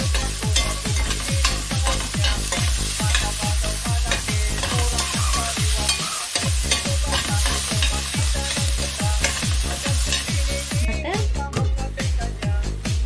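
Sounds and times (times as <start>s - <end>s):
spoon scraping a pan: 0.0s - 10.7s
onion sizzling in oil: 0.0s - 10.9s.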